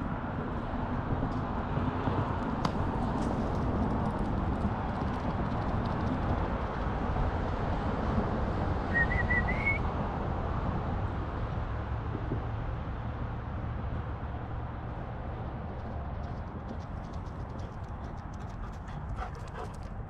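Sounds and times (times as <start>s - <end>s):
warbling whistle: 8.9s - 9.8s.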